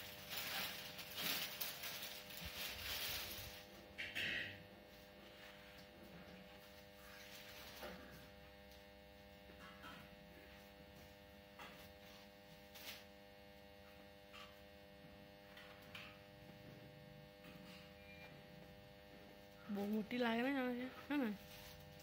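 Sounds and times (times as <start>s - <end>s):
cloth rustling: 0.0s - 3.7s
faint electrical hum: 0.0s - 22.0s.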